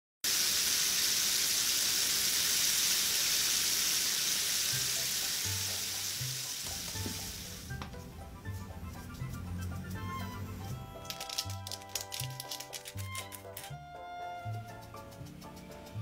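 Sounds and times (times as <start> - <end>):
chicken deep-frying sizzle: 0.2 - 7.8
background music: 4.7 - 16.0.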